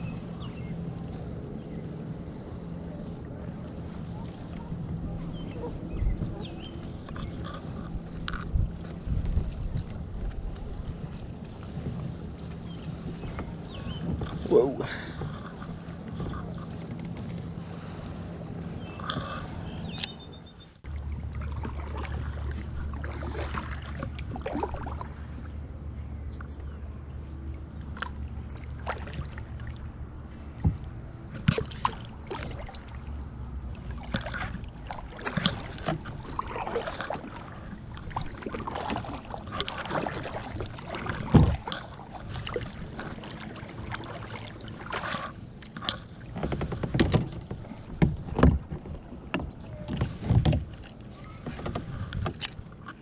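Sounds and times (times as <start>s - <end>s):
paddle splashing in water: 0.0s - 53.0s.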